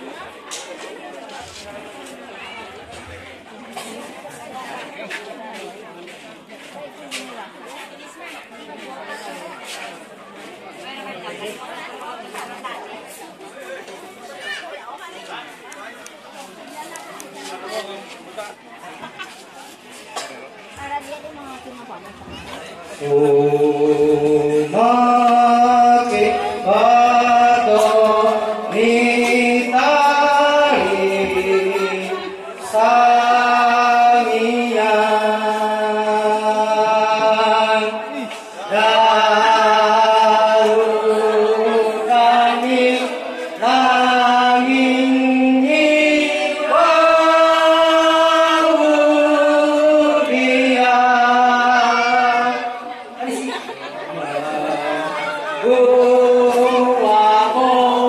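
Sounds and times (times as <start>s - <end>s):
man chanting over loudspeaker: 22.8s - 53.0s, 54.2s - 58.0s.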